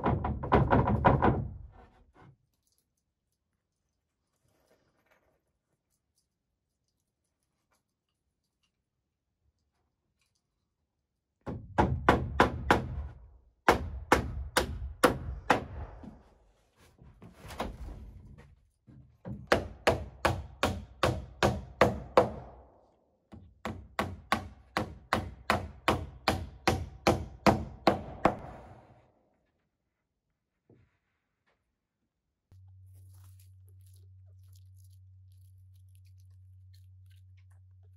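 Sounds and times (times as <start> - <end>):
hammer driving nails into wood: 11.4 - 16.2, 19.3 - 22.7, 23.3 - 28.7.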